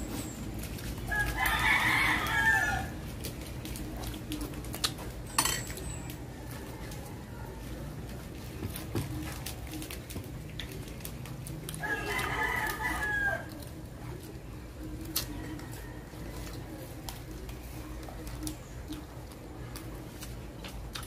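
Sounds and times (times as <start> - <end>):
rooster crowing: 1.1 - 3.0, 11.8 - 13.6.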